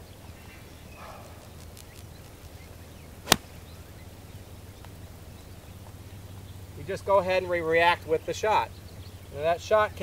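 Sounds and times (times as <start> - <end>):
golf club striking ball: 3.2 - 3.7.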